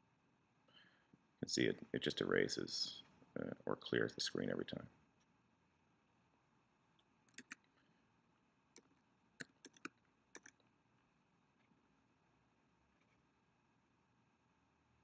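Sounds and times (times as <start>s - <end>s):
faint keyboard and mouse clicks: 7.0s - 7.8s, 8.7s - 10.7s.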